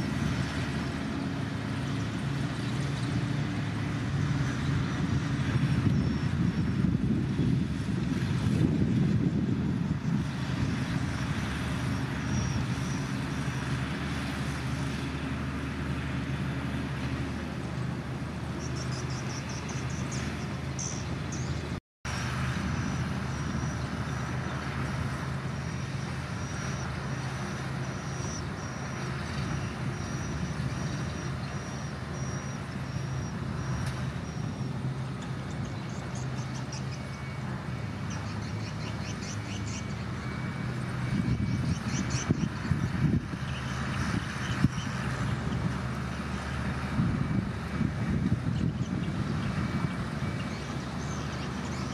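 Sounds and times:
bulldozer diesel engine: 0:00.0 - 0:51.9.

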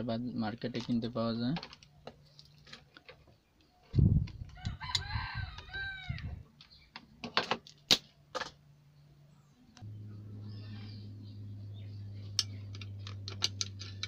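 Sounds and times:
rooster crowing: 0:04.6 - 0:06.4
desoldering pump clicks and snaps: 0:12.3 - 0:14.0.

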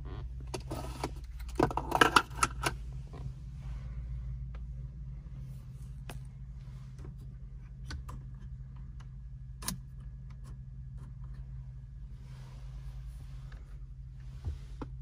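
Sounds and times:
car engine idling: 0:00.0 - 0:15.0.

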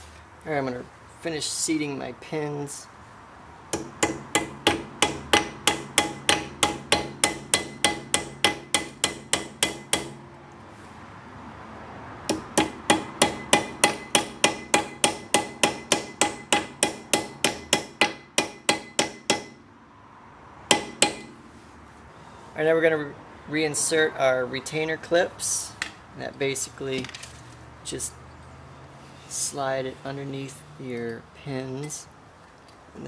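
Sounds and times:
hammer striking metal: 0:03.7 - 0:10.2, 0:12.3 - 0:19.6, 0:20.7 - 0:21.4.

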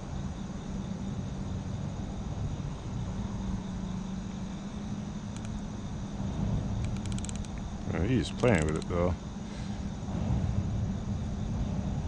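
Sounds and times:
low hum: 0:00.0 - 0:12.0
faint ticks: 0:05.3 - 0:05.6, 0:06.8 - 0:07.7, 0:08.3 - 0:09.0
low rumble: 0:09.8 - 0:12.0.

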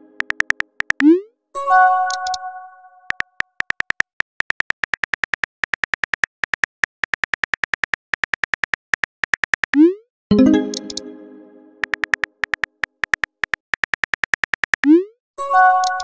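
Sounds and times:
phone keyboard tap clicks: 0:00.2 - 0:01.1, 0:11.8 - 0:14.9.

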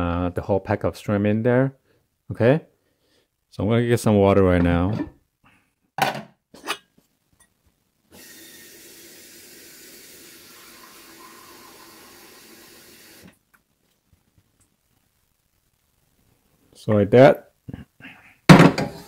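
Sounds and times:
tap water running into pot: 0:08.2 - 0:13.3.

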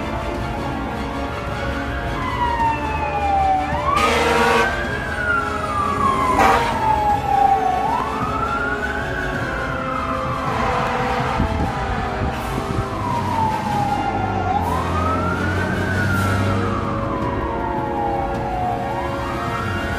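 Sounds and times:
emergency siren wailing: 0:00.0 - 0:19.9
short loud siren blasts: 0:02.3 - 0:17.6.

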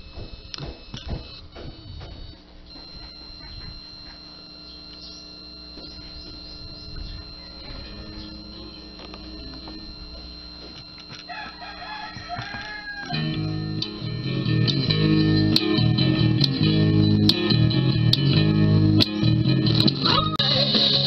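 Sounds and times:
guitar and bass music from speaker: 0:04.9 - 0:11.2, 0:12.3 - 0:21.0.

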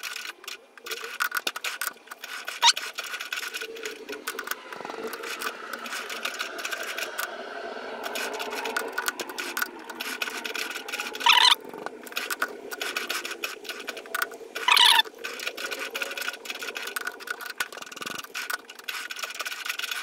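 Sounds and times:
mechanical clicking and rattling: 0:00.0 - 0:20.0
lathe running: 0:03.2 - 0:19.2.

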